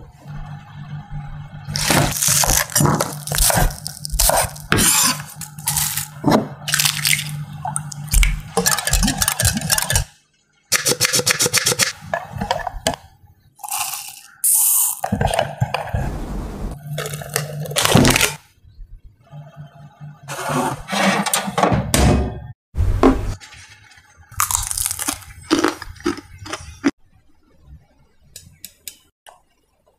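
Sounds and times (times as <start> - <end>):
whisk beating in glass bowl: 8.2 - 10.1.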